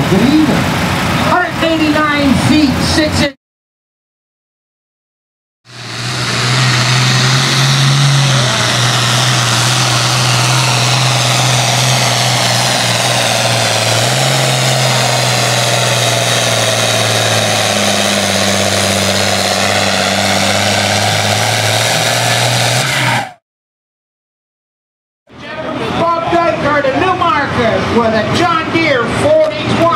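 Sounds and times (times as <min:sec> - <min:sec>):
tractor engine under heavy load: 0:05.7 - 0:23.4.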